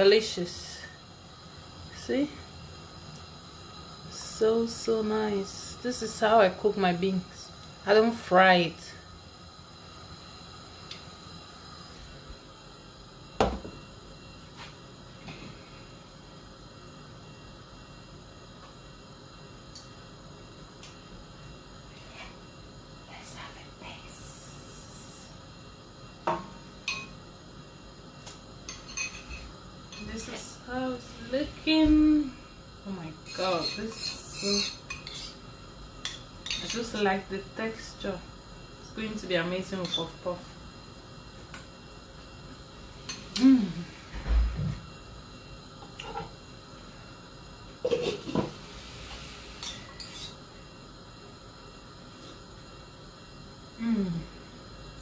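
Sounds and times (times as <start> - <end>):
spoon clinking on cookware: 33.3 - 35.4, 36.0 - 37.0, 39.8 - 40.1.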